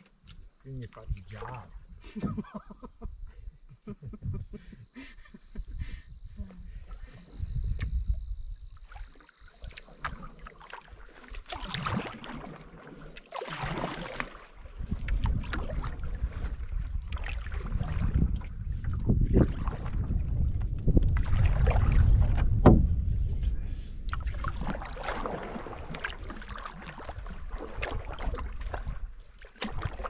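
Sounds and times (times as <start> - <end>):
paddle splashing water: 0.0 - 2.4, 6.6 - 30.0
high insect trill: 0.0 - 20.5
wind rumble on microphone: 0.9 - 4.9, 5.5 - 9.0, 14.6 - 30.0.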